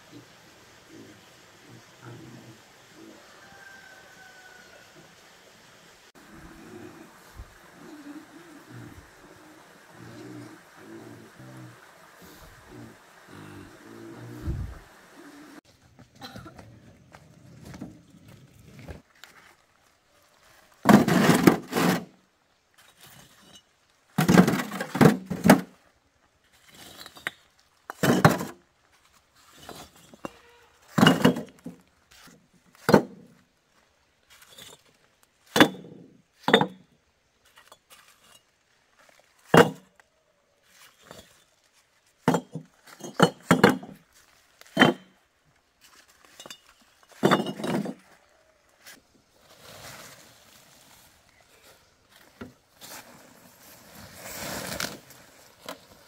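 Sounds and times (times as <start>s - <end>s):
hard objects knocking and clinking: 46.3s - 48.0s.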